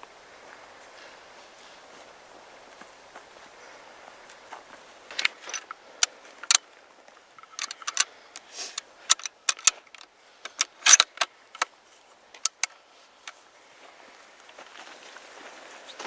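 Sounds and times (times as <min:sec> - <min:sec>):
rifle bolt clicks and clinks: 0:05.1 - 0:06.6, 0:07.4 - 0:11.7, 0:12.4 - 0:12.8.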